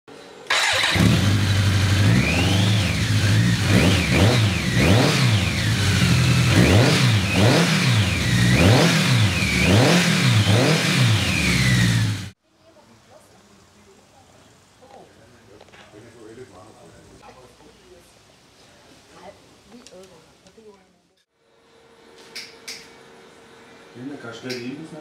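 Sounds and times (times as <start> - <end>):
engine revving: 0.5 - 12.4.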